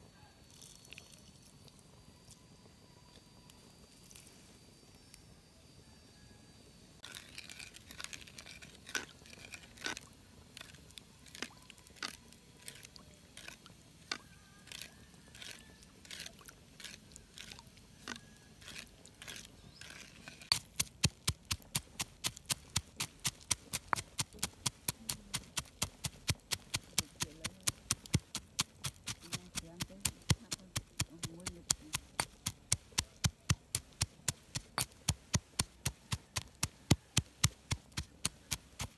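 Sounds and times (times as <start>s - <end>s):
pestle pounding in stone mortar: 20.5s - 38.9s.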